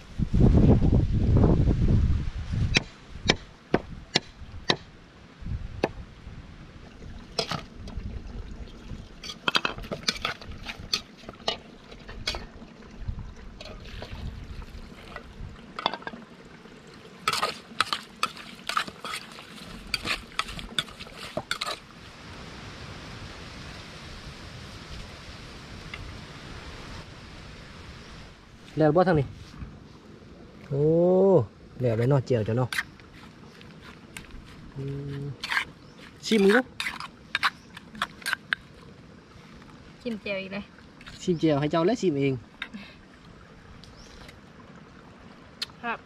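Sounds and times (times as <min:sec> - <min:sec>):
metal spoon scraping pot: 0:17.2 - 0:21.8, 0:35.4 - 0:38.6.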